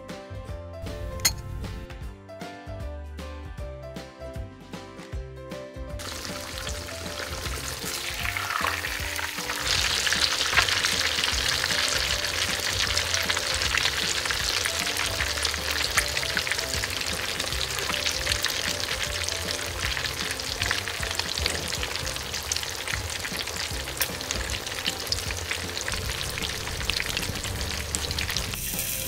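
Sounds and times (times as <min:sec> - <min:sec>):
background music: 0:00.0 - 0:29.0
food sizzling in pan: 0:06.0 - 0:29.0.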